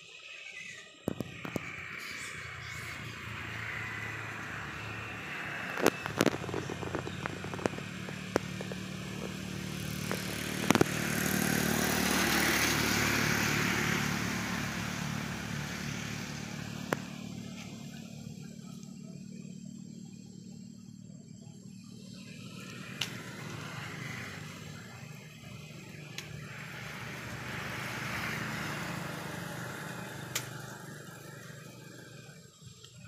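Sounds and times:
vehicle engine passing: 1.1 - 20.7, 21.5 - 32.6
sharp clicks: 4.2 - 12.0.

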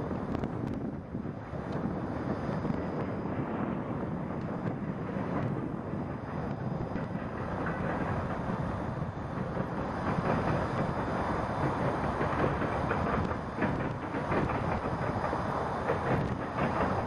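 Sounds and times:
freight train wheels rumbling on rail: 0.0 - 17.0
wheel clicks on rail: 4.3 - 17.0.

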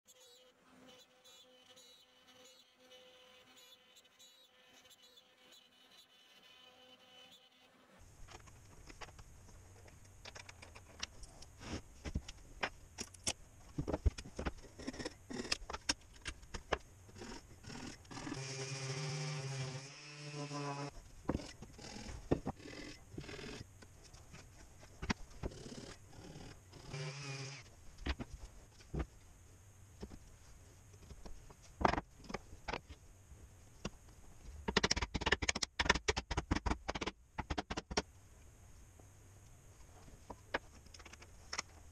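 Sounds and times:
knocks and clicks of wooden parts: 12.0 - 17.2, 21.2 - 25.6, 28.0 - 29.1, 31.0 - 33.0, 33.8 - 38.1.

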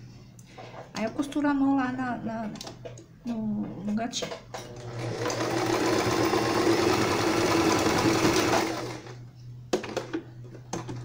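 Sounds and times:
sewing machine stitching: 4.6 - 9.1.

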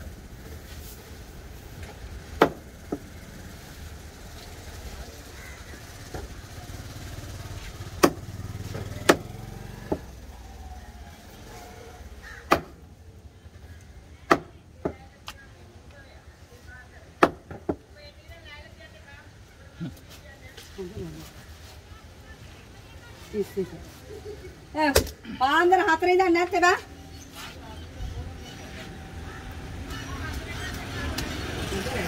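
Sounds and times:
low rumble of road traffic: 0.0 - 32.0.

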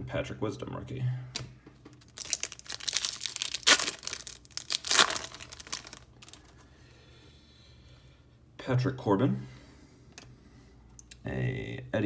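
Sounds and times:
foil wrapper tearing and crinkling: 2.0 - 6.5.

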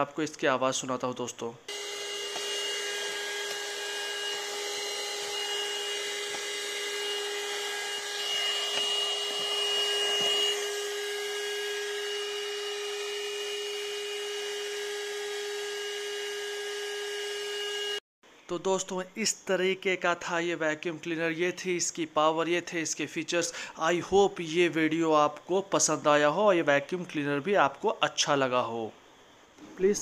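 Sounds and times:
handheld vacuum cleaner running: 1.7 - 18.0.

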